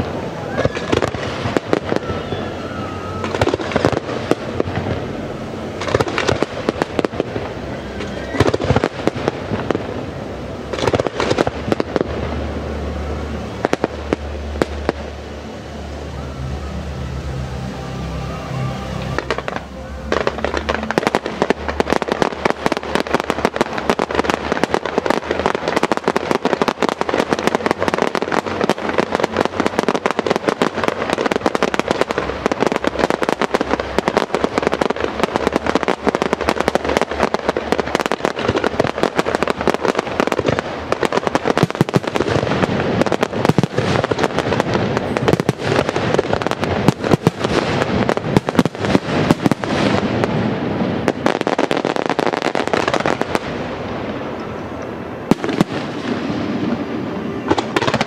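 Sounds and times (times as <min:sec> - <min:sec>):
fireworks bangs and crackles: 0:00.0 - 0:58.0
deep firework booms: 0:19.2 - 0:54.2.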